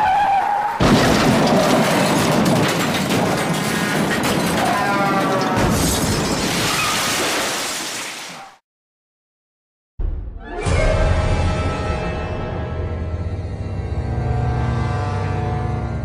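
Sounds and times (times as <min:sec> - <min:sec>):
loud crash: 0:00.8 - 0:04.9.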